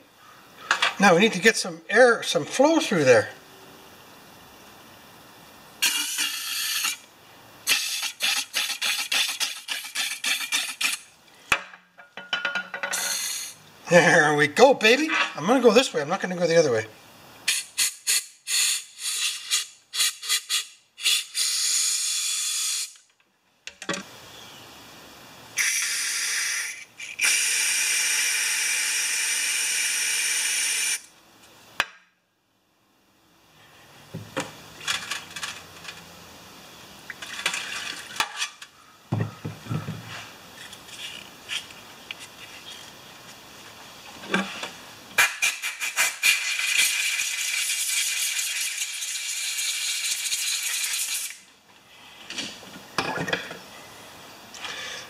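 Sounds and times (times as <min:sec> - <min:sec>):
air blow gun hissing blasts: 0:12.9 - 0:13.6
aerosol spray hissing: 0:13.0 - 0:13.6, 0:17.5 - 0:22.9.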